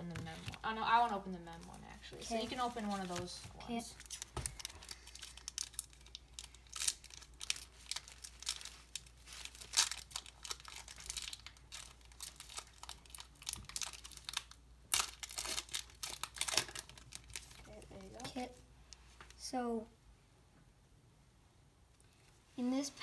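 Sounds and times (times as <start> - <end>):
plastic wrapper tearing and crinkling: 0.1 - 0.7, 2.4 - 18.4.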